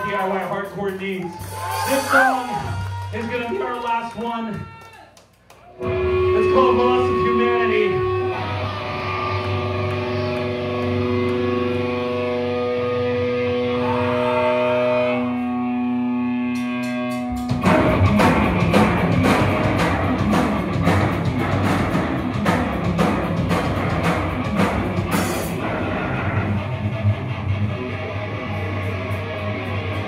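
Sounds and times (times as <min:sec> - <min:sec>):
hardcore band playing: 0:00.0 - 0:04.2, 0:05.8 - 0:30.0
distorted guitar note: 0:05.8 - 0:20.3, 0:21.0 - 0:30.0.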